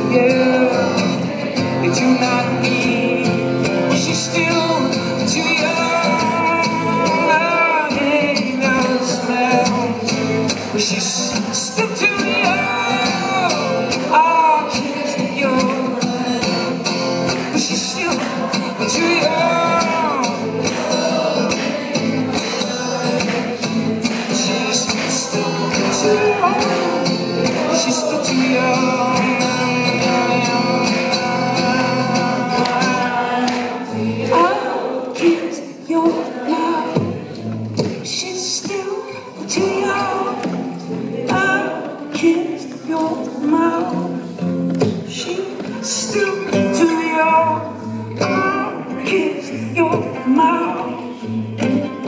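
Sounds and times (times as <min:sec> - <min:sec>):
acoustic guitar: 0:00.0 - 0:52.0
man singing into microphone: 0:00.0 - 0:52.0
audience finger clicks and claps: 0:13.0 - 0:33.9.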